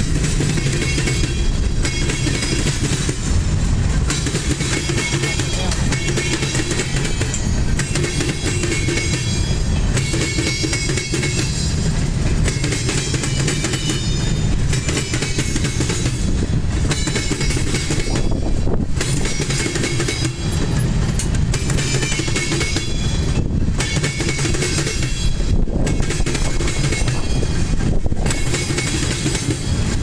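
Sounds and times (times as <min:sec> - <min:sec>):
train rolling past rumble: 0:00.0 - 0:30.0.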